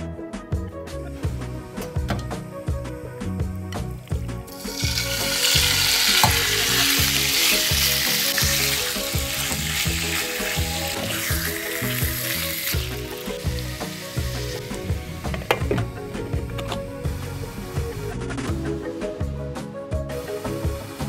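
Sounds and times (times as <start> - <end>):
meat sizzling in hot oil: 3.5 - 15.3.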